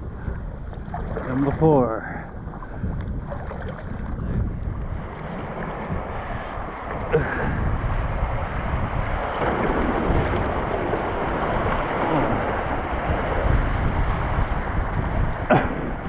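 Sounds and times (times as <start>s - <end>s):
wind buffeting microphone: 0.0s - 16.0s
river water rushing: 4.9s - 16.0s.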